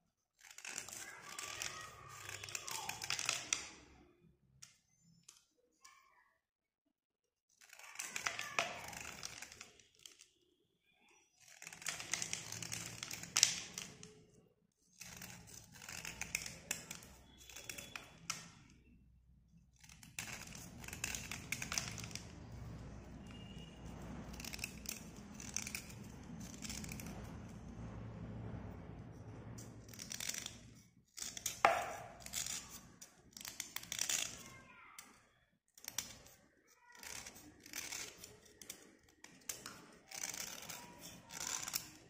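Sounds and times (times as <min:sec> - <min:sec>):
metal blade scraping slate: 0:29.6 - 0:34.4.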